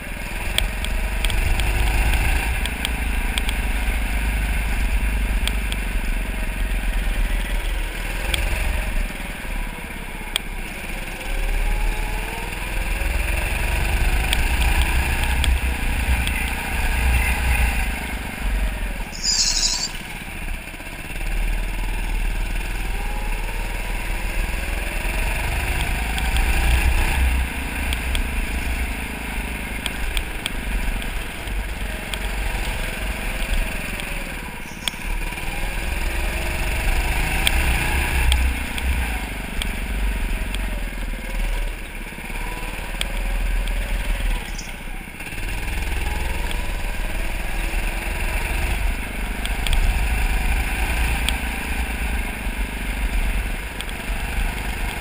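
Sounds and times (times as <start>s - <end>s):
go-kart motor revving: 0.0s - 19.4s, 20.0s - 55.0s.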